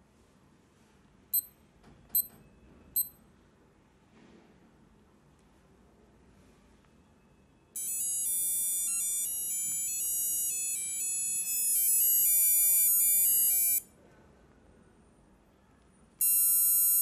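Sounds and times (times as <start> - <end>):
alarm clock melody: 7.8 - 13.8.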